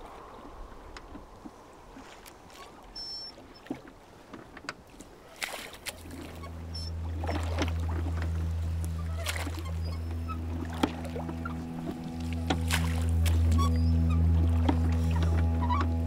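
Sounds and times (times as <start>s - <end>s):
oar splashing in water: 0.0s - 16.0s
low musical drone: 6.1s - 16.0s.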